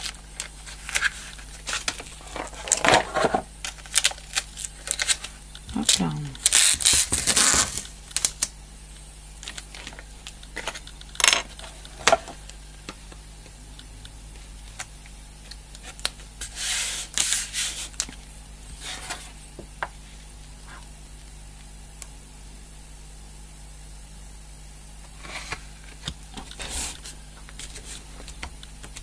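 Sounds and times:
cardboard rustling and scraping: 0.6 - 3.5, 18.8 - 19.4, 25.1 - 28.3
paper tape pulled off roll: 6.4 - 8.3.

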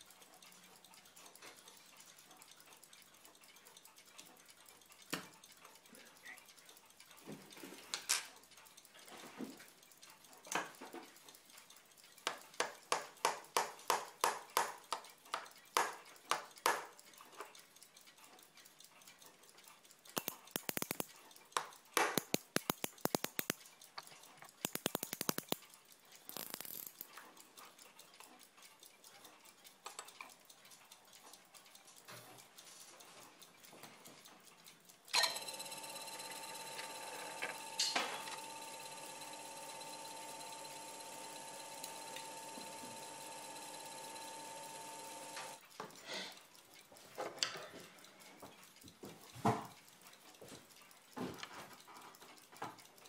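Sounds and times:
small hammer tapping on brass: 12.2 - 17.0, 20.2 - 23.6, 24.6 - 25.6.

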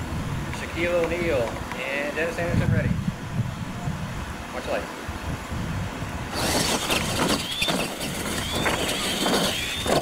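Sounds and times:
rushing hiss of motors and tyres: 0.0 - 10.0
rc truck motors whining: 6.3 - 10.0
trucks knocking on ramps: 6.4 - 10.0.

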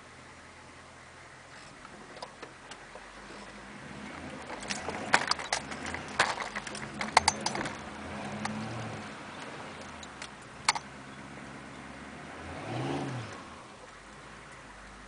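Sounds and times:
diesel engine drone: 0.0 - 15.0
clicks and knocks in cab: 4.5 - 8.6.

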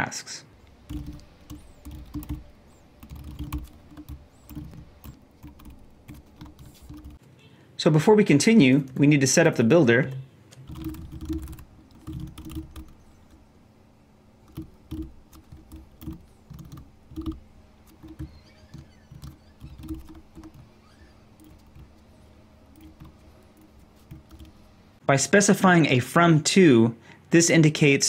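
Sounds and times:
computer keyboard typing: 0.6 - 7.2, 10.1 - 13.6, 14.4 - 24.9.

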